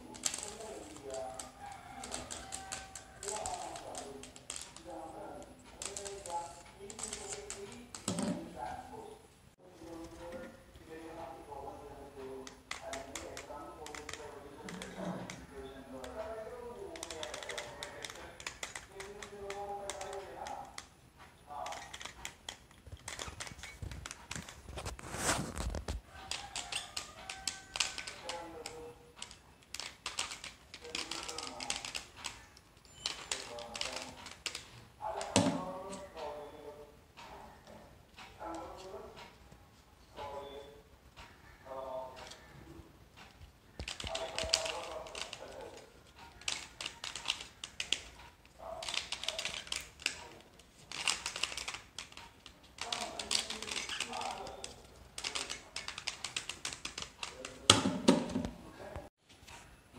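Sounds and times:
plastic cube layers clacking: 0:00.0 - 0:08.4, 0:12.4 - 0:20.9, 0:21.5 - 0:36.1, 0:43.2 - 0:58.3
faint musical tones: 0:00.0 - 0:57.7.

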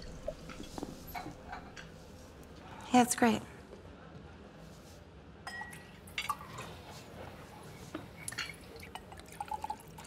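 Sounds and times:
glassware and tableware clinking: 0:00.0 - 0:01.9, 0:05.4 - 0:06.7, 0:08.0 - 0:09.8.

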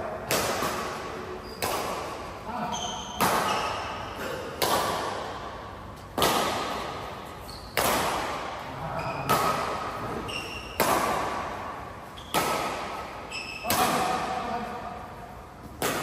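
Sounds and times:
racket hitting shuttlecock: 0:00.1 - 0:14.4, 0:15.6 - 0:16.0
shoe squeaks: 0:01.4 - 0:01.7, 0:02.6 - 0:04.2, 0:07.3 - 0:07.8, 0:08.9 - 0:09.4, 0:10.1 - 0:10.8, 0:12.1 - 0:12.4, 0:13.2 - 0:13.8.

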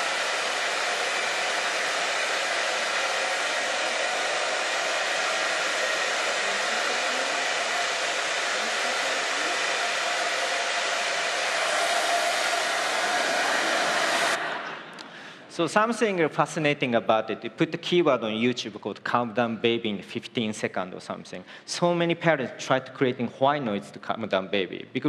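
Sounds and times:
hair dryer blowing: 0:00.0 - 0:15.1.

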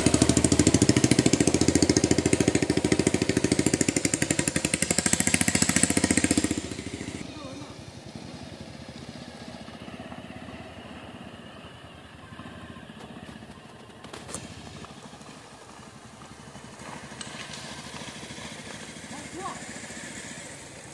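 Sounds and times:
motorcycle engine running: 0:00.0 - 0:20.9
clatter of stones: 0:13.0 - 0:15.4, 0:16.2 - 0:18.9.

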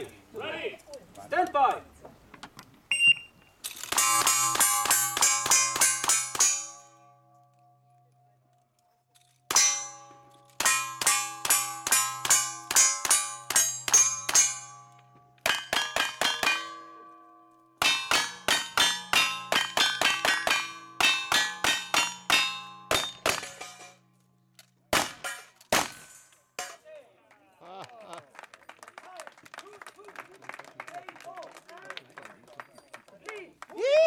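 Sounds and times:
steel plates clanging: 0:03.7 - 0:07.2, 0:09.2 - 0:17.0, 0:17.8 - 0:24.2, 0:25.0 - 0:26.8
shotgun shots: 0:24.9 - 0:26.1.

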